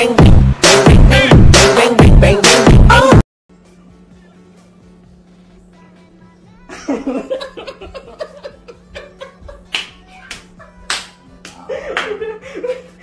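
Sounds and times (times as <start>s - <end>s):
man laughing heartily: 6.7s - 9.7s, 11.6s - 13.0s.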